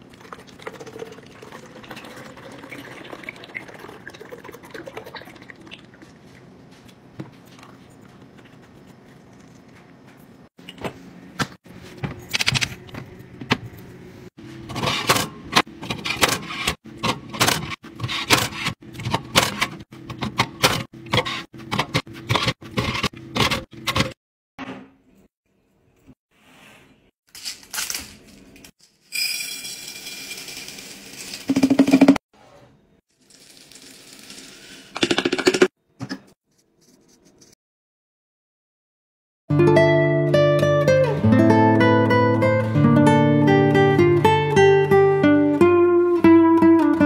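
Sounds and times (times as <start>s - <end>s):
candy beads poured into glass jar: 29.1s - 31.5s, 33.2s - 34.8s.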